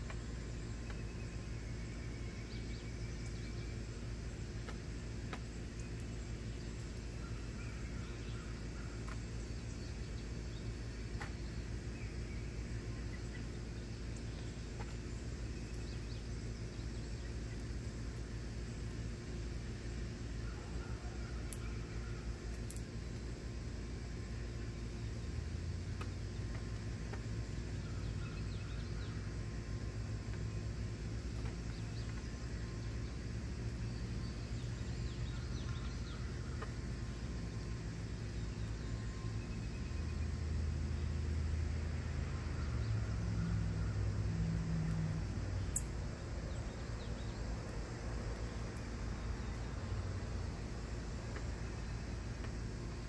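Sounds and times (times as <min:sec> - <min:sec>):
low outdoor rumble: 0:00.0 - 0:53.0
small birds chirping: 0:00.0 - 0:53.0
faint bird chirps: 0:05.7 - 0:17.8, 0:25.9 - 0:29.5, 0:31.3 - 0:41.2.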